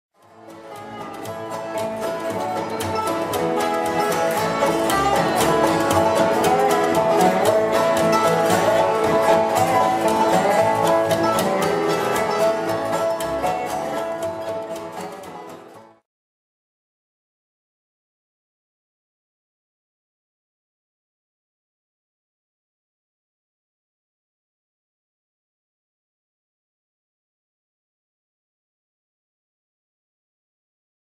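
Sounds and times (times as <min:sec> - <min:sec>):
bluegrass banjo and guitar music: 0:00.2 - 0:16.0.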